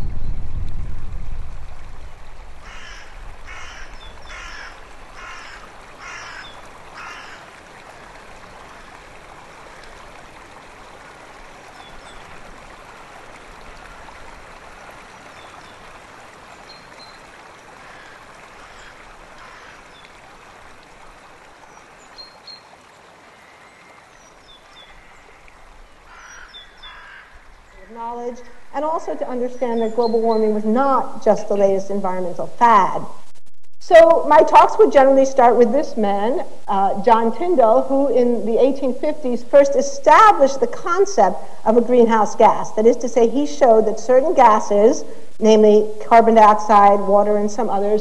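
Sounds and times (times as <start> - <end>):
steady watery hiss: 0.8 - 31.4
harsh caw-like animal calls: 2.6 - 7.5, 17.8 - 20.0, 26.1 - 27.6.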